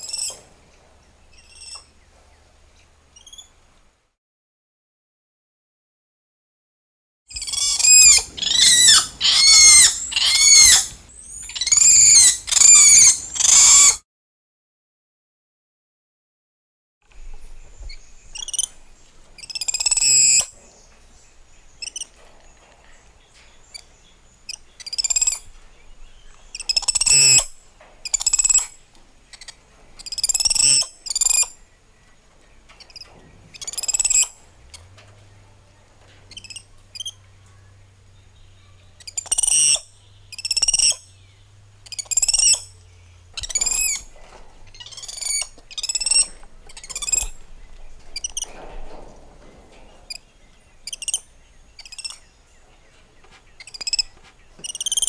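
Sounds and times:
monkeys calling: 7.3s - 14.0s, 26.5s - 31.6s, 38.6s - 41.1s, 41.8s - 42.8s, 43.4s - 47.4s, 50.8s - 52.3s, 53.6s - 55.0s.

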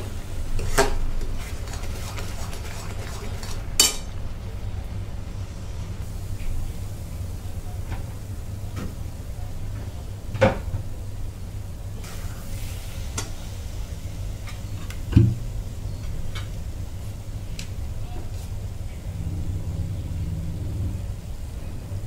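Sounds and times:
low rumble: 18.8s - 22.0s.

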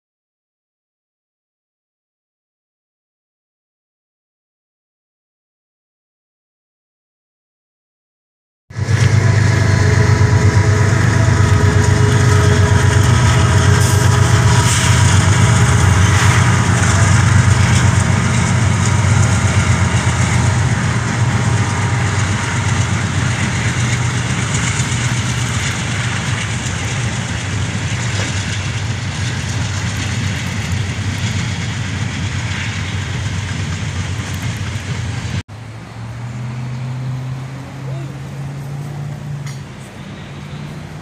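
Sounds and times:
diesel locomotive engine hum: 8.7s - 41.0s
freight cars rolling on track: 8.7s - 41.0s.

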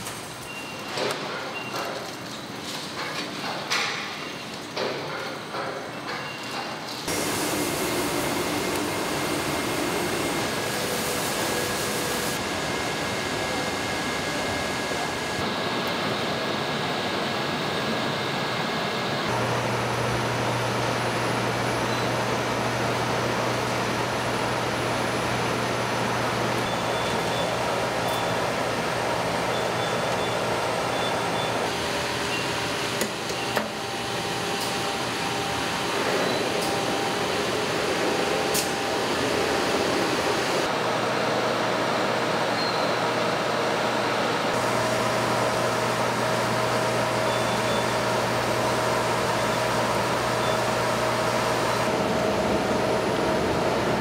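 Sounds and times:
industrial machinery whirring: 4.8s - 42.6s, 43.4s - 54.0s.

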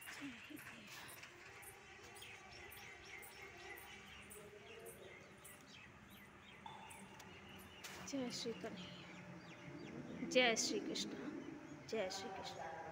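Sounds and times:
small birds chirping: 0.0s - 12.9s.

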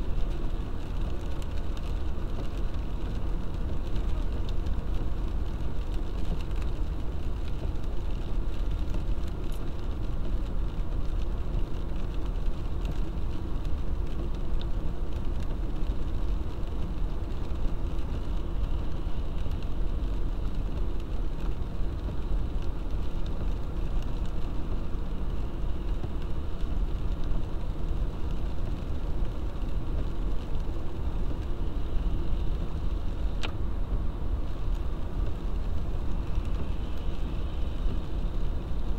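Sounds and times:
car engine and tyre rumble: 0.0s - 38.9s.

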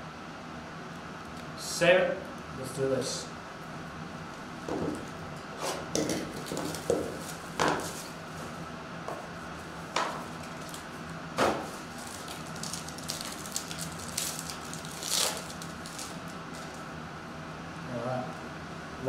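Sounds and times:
plastic wrappers crinkling: 10.3s - 10.9s, 11.7s - 16.9s
pack wrapper tearing open: 12.0s - 16.8s.

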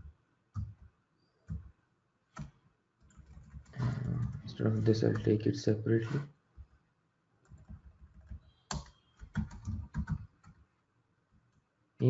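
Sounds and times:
typing on a keyboard: 0.5s - 0.8s, 2.4s - 3.8s, 7.4s - 10.7s.

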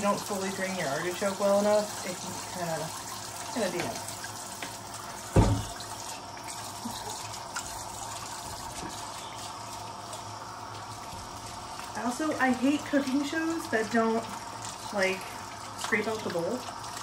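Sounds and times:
tap running into sink: 3.6s - 6.0s
dull thump of food dropping: 5.4s - 5.6s.

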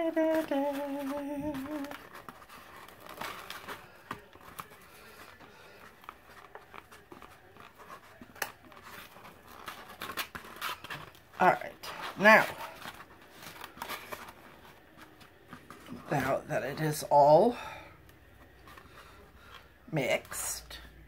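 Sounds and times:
woman humming: 0.0s - 2.0s.

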